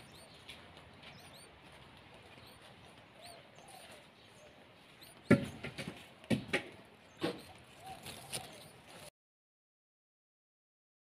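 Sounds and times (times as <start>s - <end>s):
nestlings cheeping: 0.0s - 4.1s, 4.8s - 6.5s
loud knocks: 5.3s - 7.4s.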